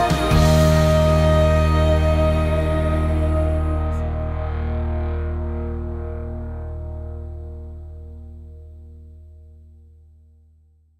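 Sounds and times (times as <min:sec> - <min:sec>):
held music chord with deep bass: 0:00.0 - 0:10.5.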